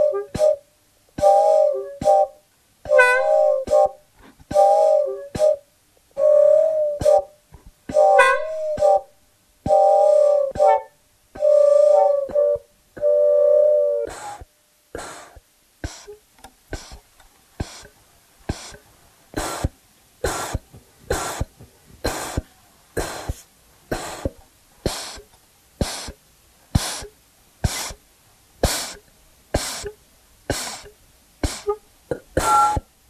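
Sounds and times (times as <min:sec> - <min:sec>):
electronic hiss bursts: 0:01.2 - 0:05.6, 0:06.5 - 0:33.0.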